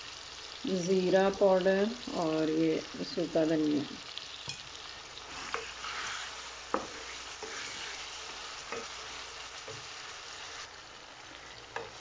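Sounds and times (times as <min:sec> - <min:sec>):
food sizzling in hot oil: 0:00.0 - 0:12.0
wooden spatula stirring and scraping: 0:05.2 - 0:10.6.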